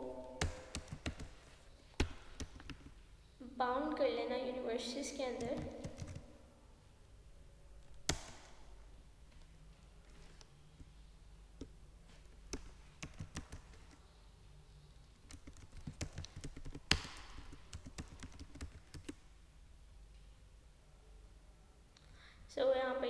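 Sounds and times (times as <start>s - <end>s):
computer keyboard typing: 0.4s - 1.4s, 2.0s - 2.9s, 5.2s - 6.3s, 12.5s - 14.0s, 15.1s - 19.2s.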